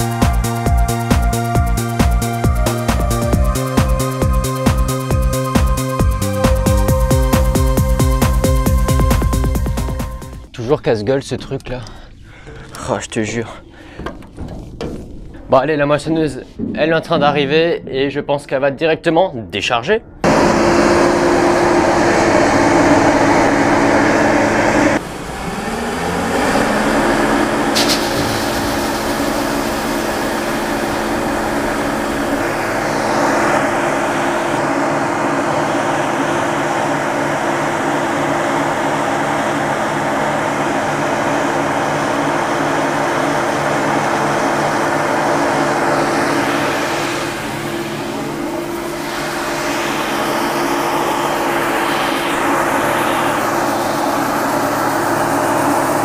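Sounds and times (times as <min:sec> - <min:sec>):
combine harvester diesel engine: 0:20.2 - 0:56.0.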